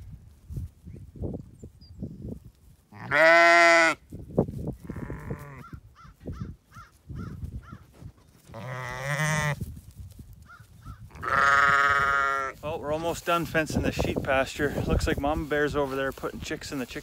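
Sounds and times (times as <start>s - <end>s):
lambs bleating: 2.9s - 4.0s, 4.8s - 5.8s, 8.5s - 9.6s, 11.1s - 12.6s.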